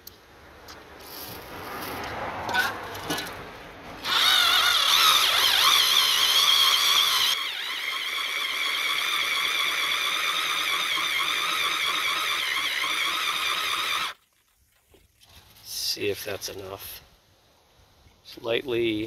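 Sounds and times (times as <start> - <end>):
hole saw whining through metal: 4.0 - 14.2.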